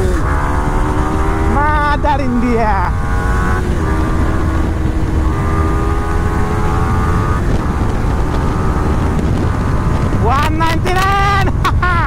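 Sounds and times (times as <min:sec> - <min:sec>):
motorcycle engine running: 0:00.0 - 0:10.3
wind rumble on microphone: 0:02.9 - 0:11.9.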